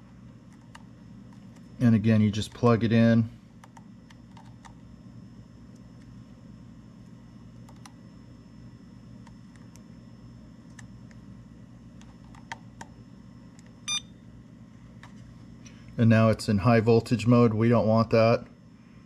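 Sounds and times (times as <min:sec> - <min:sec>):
steady low hum: 0:00.0 - 0:19.0
charger electronic beep: 0:13.9 - 0:14.1.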